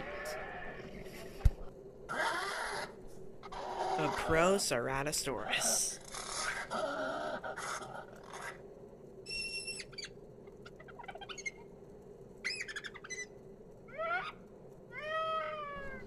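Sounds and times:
faint steady background: 0:00.0 - 0:16.0
high bird-like chirps and squawks: 0:09.3 - 0:11.6, 0:12.4 - 0:13.3.

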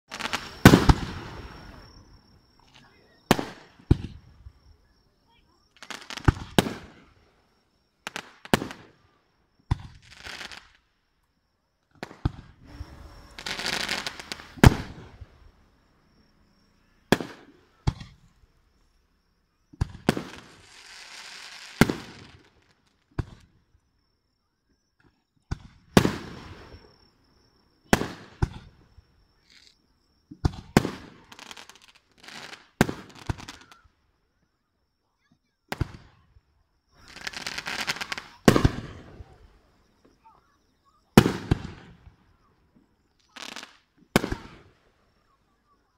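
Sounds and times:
fireworks crackling: 0:00.0 - 0:07.4, 0:08.0 - 0:09.1, 0:09.7 - 0:10.9, 0:11.9 - 0:18.5, 0:19.8 - 0:23.6, 0:25.6 - 0:27.0, 0:27.8 - 0:33.9, 0:37.0 - 0:40.4, 0:41.2 - 0:42.3, 0:43.0 - 0:45.0
firework shell bursts: 0:12.1 - 0:15.3.

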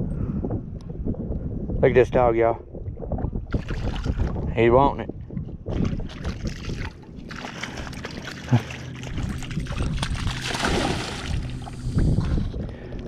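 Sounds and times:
dog splashing through water: 0:05.7 - 0:11.8.

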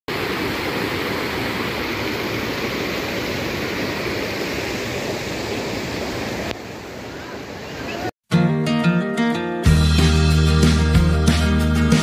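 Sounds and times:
river rushing over rocks: 0:00.1 - 0:08.1.

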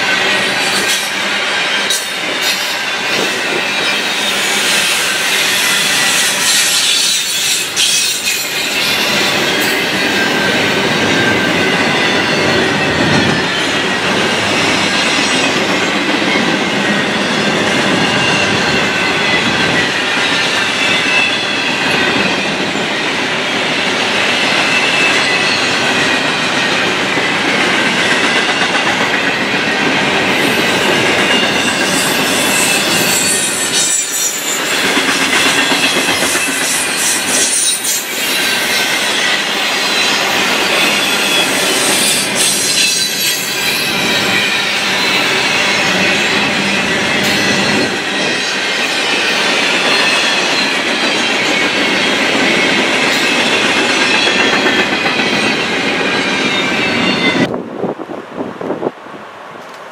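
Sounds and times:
steel wheels rolling on rail: 0:00.0 - 0:59.9
high wavering wheel squeal: 0:01.7 - 0:15.6, 0:30.3 - 0:57.5.

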